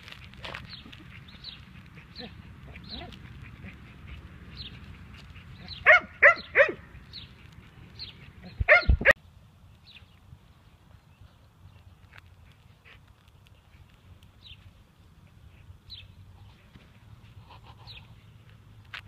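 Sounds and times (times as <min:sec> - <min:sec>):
puppy yapping: 0:05.6 - 0:06.8, 0:08.4 - 0:09.1.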